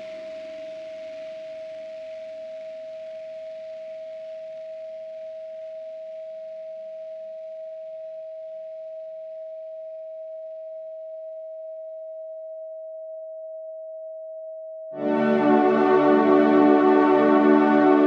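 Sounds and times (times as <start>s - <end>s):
low hum: 15.0s - 18.0s
steady pure tone: 15.0s - 18.0s.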